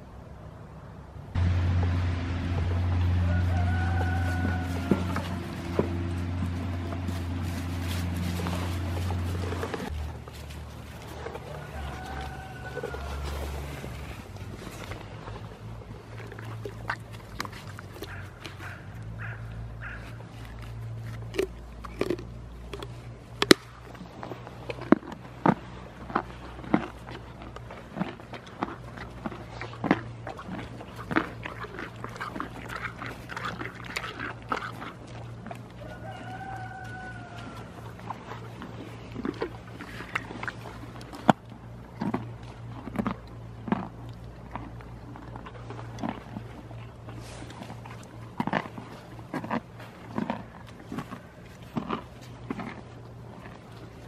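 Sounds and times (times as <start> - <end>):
pony crunching a carrot: 1.4 - 54.0
pony rummaging in a bag: 4.2 - 11.4.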